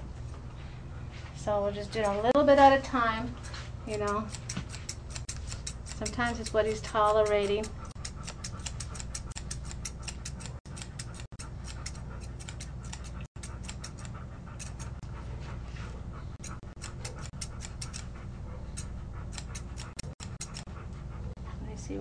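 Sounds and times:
shears snipping hair: 1.8s - 15.1s, 16.4s - 20.7s.

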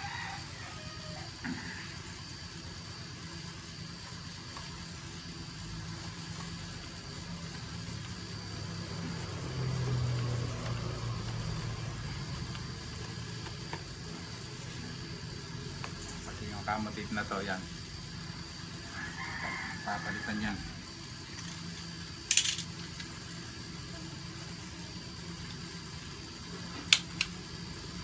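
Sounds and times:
low mechanical hum: 0.0s - 28.0s.

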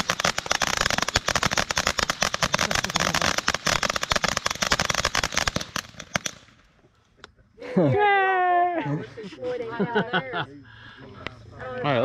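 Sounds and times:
firework fountain crackling: 0.0s - 6.7s.

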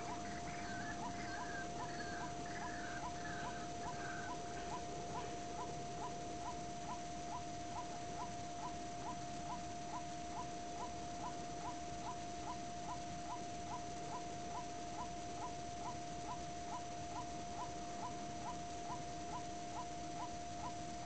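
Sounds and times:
bird calling rising note: 0.0s - 5.4s.

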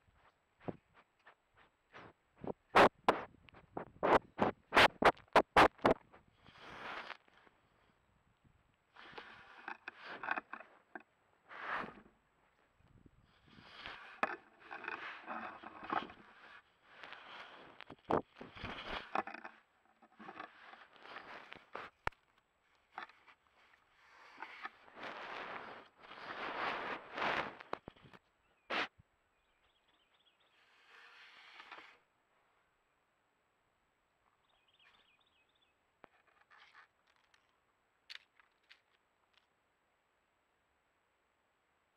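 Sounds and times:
rustling and scraping on camera: 0.0s - 8.0s, 8.9s - 29.0s, 30.4s - 32.1s, 36.0s - 39.5s.

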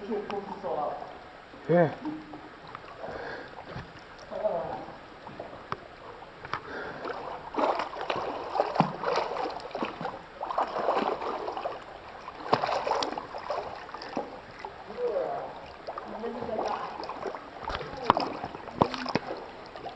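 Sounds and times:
swimmer splashing in pool: 6.7s - 19.9s.

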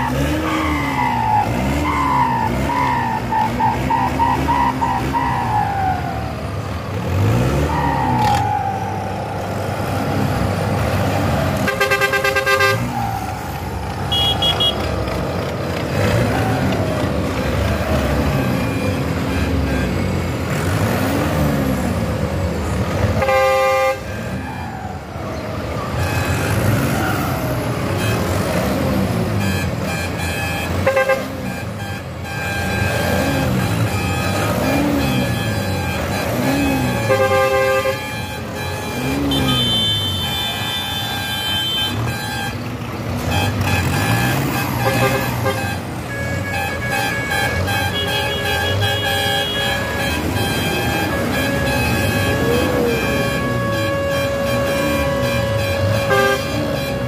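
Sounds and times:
tractor engines revving: 0.0s - 57.0s
horn blasts: 11.6s - 13.0s, 14.1s - 15.0s, 23.0s - 24.6s, 25.8s - 57.0s.

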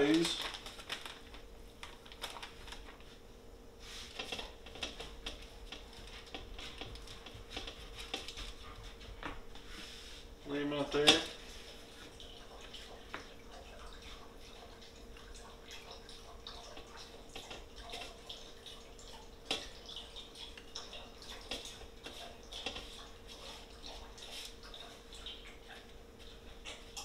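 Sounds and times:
paper rustling: 0.0s - 3.2s
faint steady hum: 0.0s - 27.0s.

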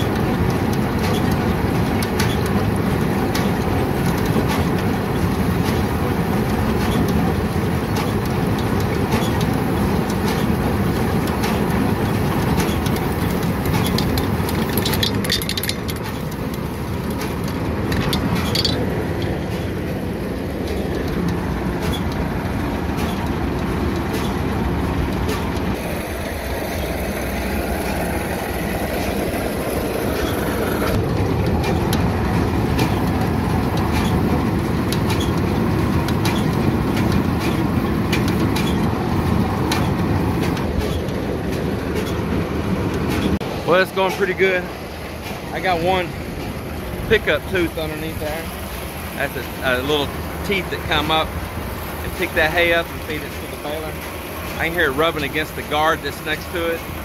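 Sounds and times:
baler mechanical clatter: 0.0s - 57.0s.

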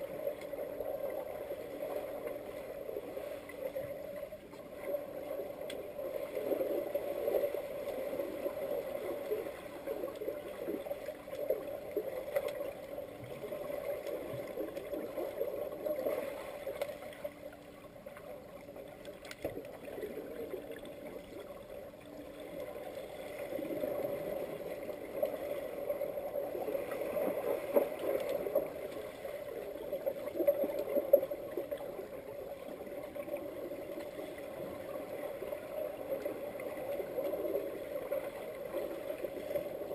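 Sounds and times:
muffled underwater churning water: 0.0s - 39.9s
faint clicks: 0.2s - 0.6s, 3.4s - 6.5s, 9.2s - 15.0s, 16.7s - 20.0s, 26.9s - 32.1s.

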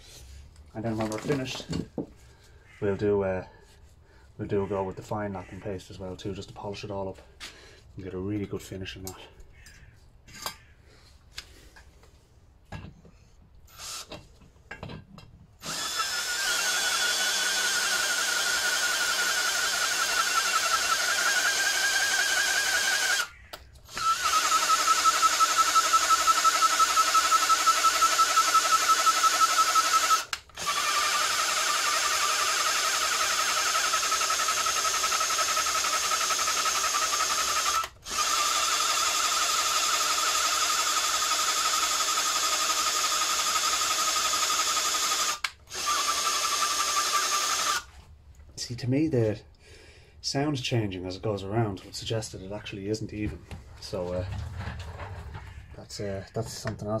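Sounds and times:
cordless drill motor whine: 13.7s - 14.2s, 15.6s - 47.9s.

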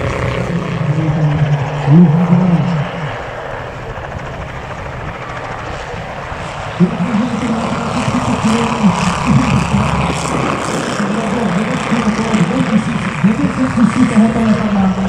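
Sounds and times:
propeller plane engine flying past: 0.0s - 15.0s.

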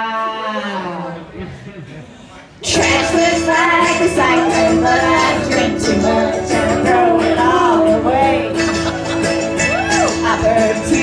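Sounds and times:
loud amplified live music: 2.6s - 11.0s.

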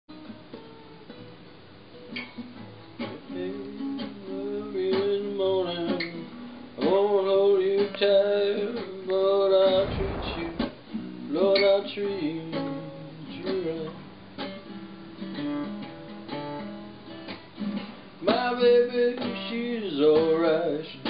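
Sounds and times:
brief scrape: 9.7s - 10.8s.

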